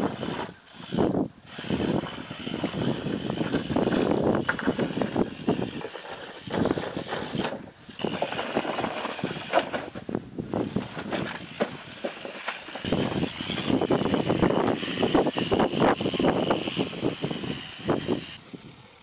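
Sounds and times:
electric motor whine: 0.0 - 5.8, 12.6 - 19.0
toy car clattering on wooden boards: 1.6 - 17.3.

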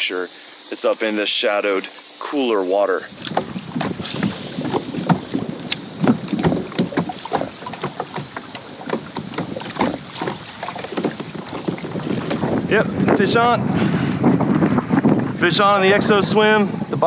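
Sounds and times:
water lapping against kayak hull: 2.7 - 13.2
wind noise on microphone: 3.1 - 17.0.

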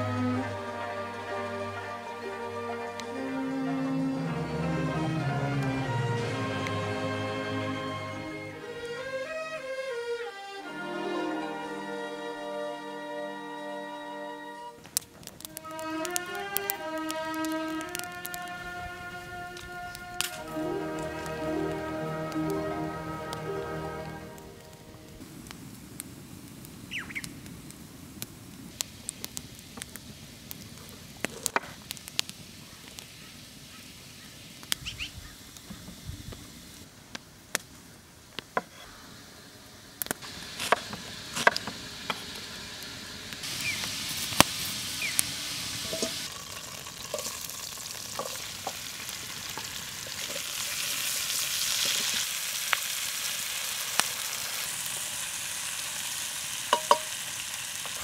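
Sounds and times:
vegetables sizzling in a pan: 15.0 - 25.1, 25.8 - 36.8, 38.7 - 58.0.

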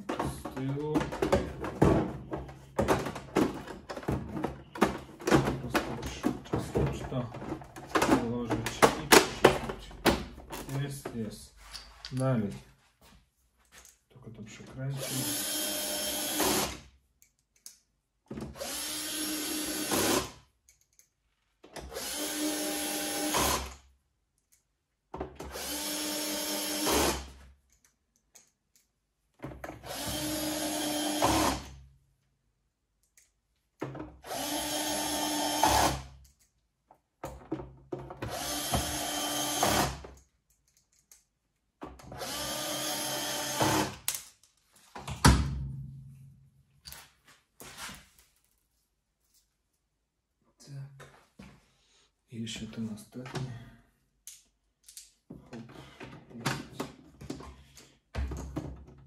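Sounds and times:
cordless drill driving screws: 15.0 - 16.8, 18.6 - 20.4, 21.9 - 23.8, 25.5 - 27.3, 29.8 - 31.7, 34.2 - 36.1, 38.2 - 40.0, 42.2 - 44.1.

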